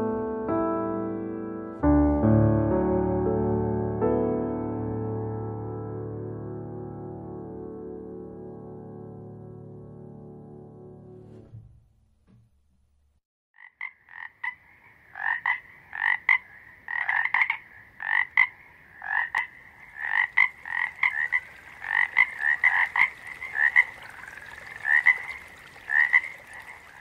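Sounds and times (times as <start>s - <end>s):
frogs croaking in chorus: 13.6s - 27.0s.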